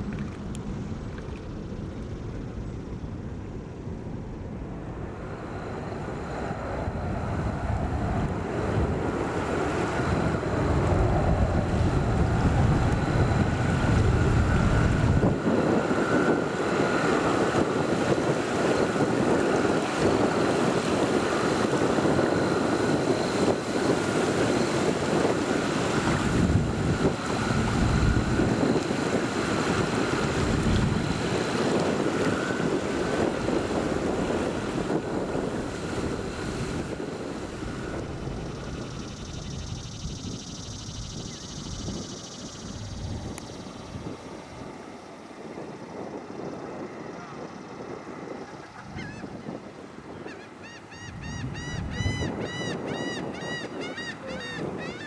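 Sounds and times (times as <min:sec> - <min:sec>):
faint high engine whine: 0:00.0 - 0:55.0
jet engines rumbling: 0:00.0 - 0:55.0
wind buffeting microphone: 0:00.0 - 0:55.0
bird calling ringing notes: 0:50.2 - 0:55.0.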